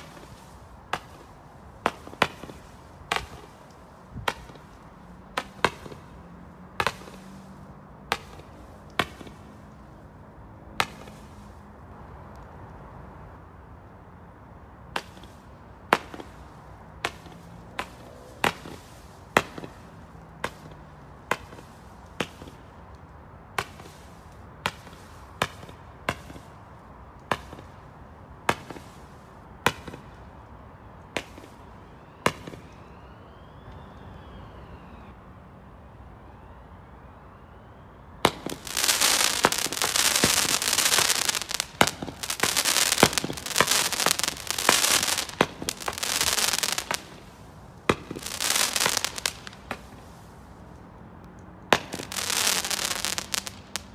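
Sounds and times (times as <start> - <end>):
firework crackling barrage: 0.0 - 6.1, 38.2 - 50.3, 51.7 - 53.9
firework sharp bangs: 0.0 - 6.1, 38.2 - 50.0, 51.7 - 53.9.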